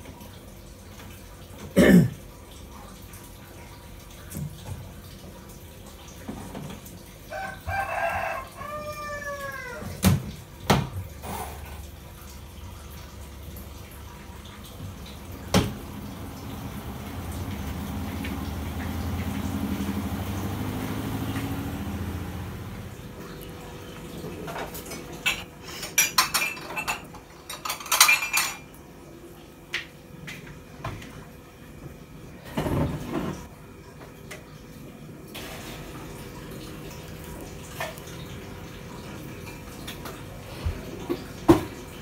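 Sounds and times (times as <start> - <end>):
running water: 0.0 - 31.7, 32.4 - 42.0
dishes and cutlery clattering: 24.4 - 28.7.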